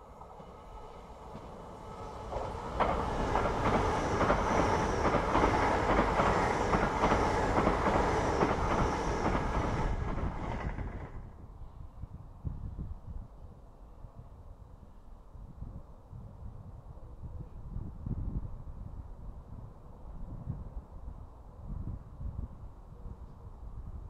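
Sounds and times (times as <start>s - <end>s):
train passing at speed: 0.0s - 12.8s
wheels clicking over track: 1.3s - 11.1s.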